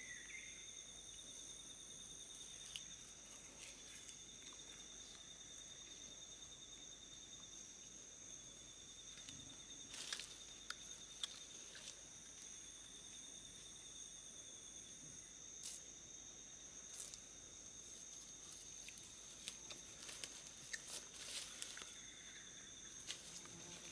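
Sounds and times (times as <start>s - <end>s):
insect trilling: 0.0s - 23.9s
dry leaves and twigs crackling: 2.3s - 5.9s, 9.1s - 13.2s, 16.8s - 23.9s.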